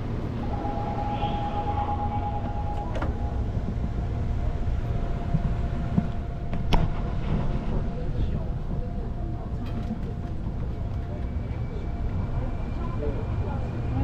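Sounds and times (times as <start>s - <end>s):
subway train rumble: 0.0s - 14.0s
thin high tone: 0.4s - 3.6s.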